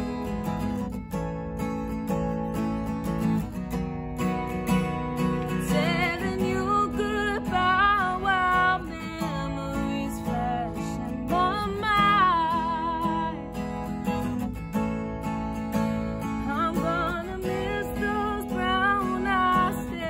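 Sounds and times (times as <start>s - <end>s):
acoustic guitar strumming: 0.0s - 20.0s
woman singing: 5.5s - 13.9s, 16.3s - 20.0s.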